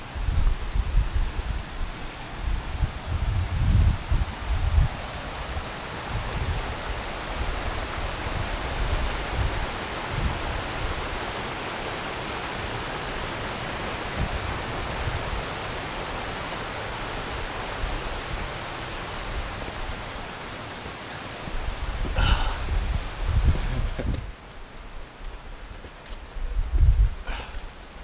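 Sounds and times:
wind buffeting microphone: 0.0 - 11.2, 21.4 - 27.6
creek rushing over rocks: 0.0 - 28.0.

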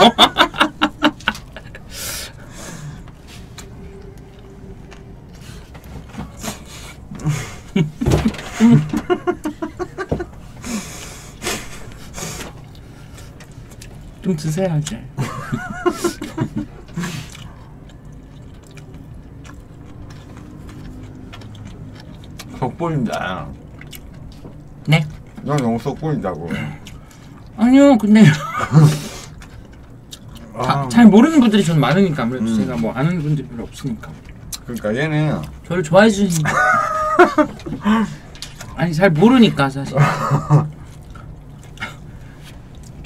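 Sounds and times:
person laughing: 0.0 - 2.2, 7.1 - 11.9, 15.2 - 17.3, 28.2 - 29.2, 36.4 - 38.2, 39.9 - 40.8
close chewing with wet mouth sounds: 10.5 - 15.1, 16.8 - 28.2, 29.0 - 36.4, 40.6 - 43.0.

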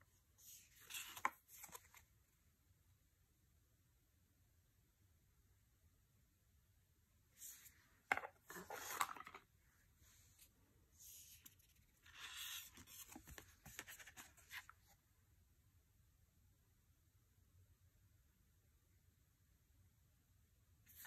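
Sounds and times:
cards shuffling and flipping: 0.6 - 2.0, 7.6 - 9.4, 11.3 - 14.7.

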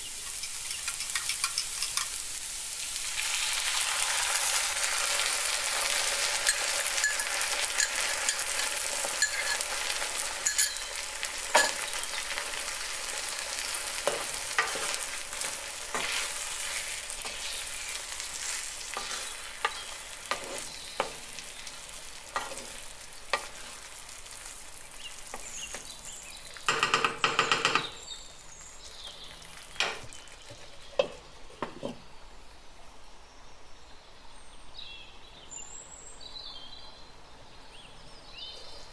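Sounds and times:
sauce sizzling in frying pan: 0.0 - 26.7, 28.2 - 30.6
spatula scraping pan: 5.8 - 24.5.

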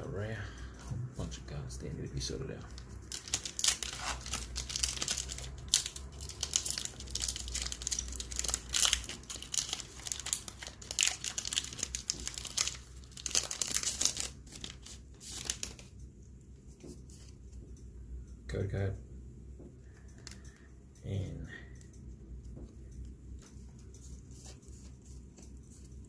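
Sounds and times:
foil wrapper crinkling and tearing: 2.8 - 15.9.

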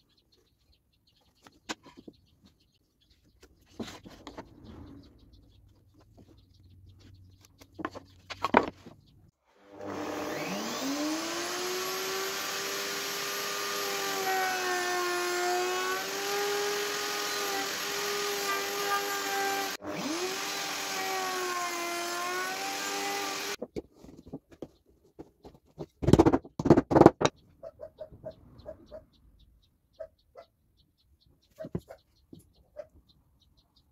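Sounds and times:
router whining and cutting wood: 9.4 - 23.6
wooden boards knocking: 26.0 - 27.3.

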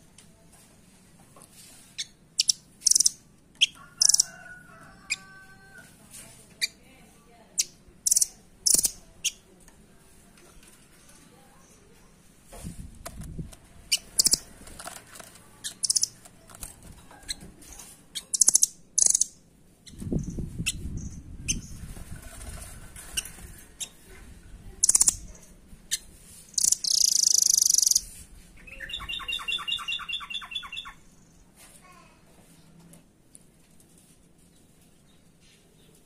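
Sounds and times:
songbird chirping: 25.9 - 31.5.

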